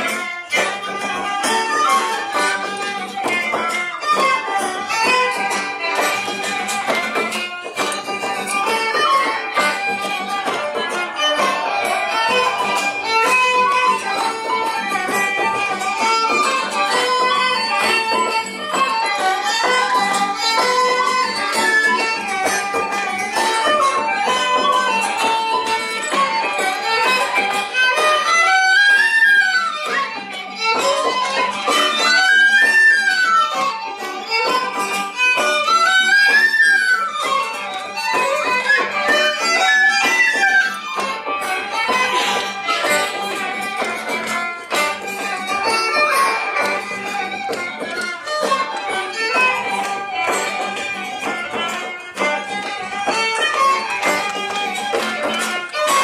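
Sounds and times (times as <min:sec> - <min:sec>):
fiddle and flute jig: 0:00.0 - 0:56.0
hand frame drum: 0:00.0 - 0:56.0
strummed acoustic guitar: 0:00.0 - 0:56.0.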